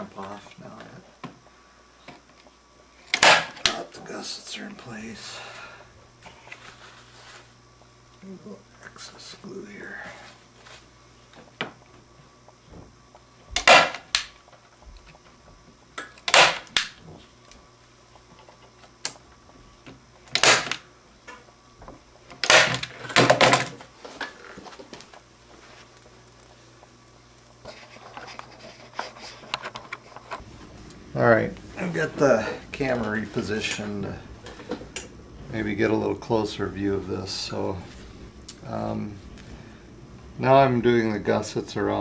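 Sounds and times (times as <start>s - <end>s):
staple gun snaps: 20.3s - 20.8s.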